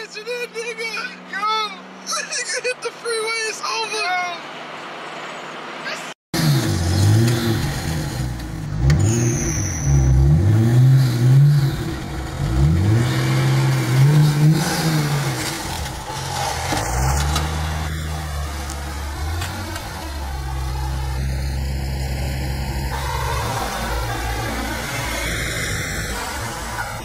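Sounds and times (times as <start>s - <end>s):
car engine revving: 6.4s - 27.0s.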